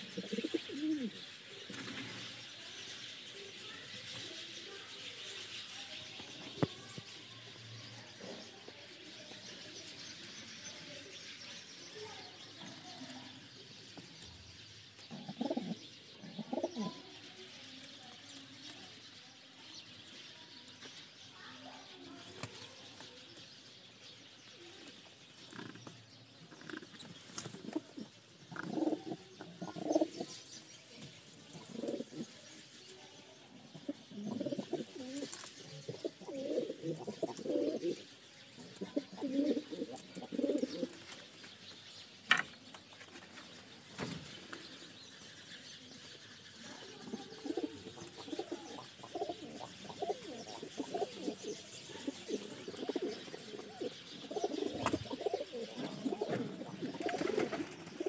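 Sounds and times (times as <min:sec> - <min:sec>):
pigeons cooing: 0:00.0 - 0:02.3, 0:15.0 - 0:17.2, 0:26.6 - 0:30.4, 0:31.4 - 0:32.4, 0:33.6 - 0:41.1, 0:46.6 - 0:58.0.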